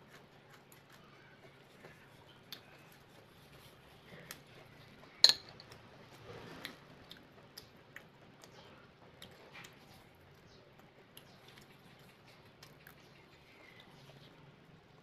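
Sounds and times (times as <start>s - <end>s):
metal chopsticks clinking on plate: 5.2s - 5.7s.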